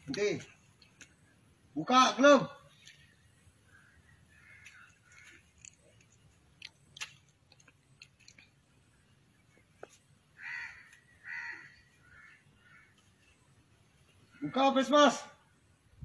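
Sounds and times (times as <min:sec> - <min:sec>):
crow cawing: 0:03.6 - 0:05.8, 0:10.3 - 0:13.4, 0:14.2 - 0:15.0.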